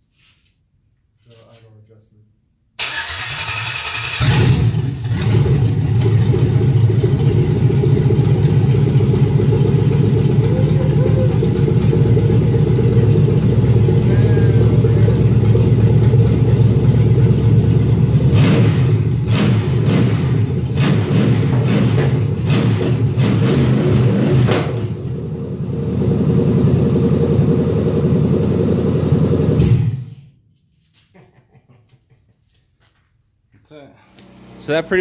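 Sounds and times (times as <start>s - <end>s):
car engine idling: 4.2s - 23.2s, 24.4s - 30.2s.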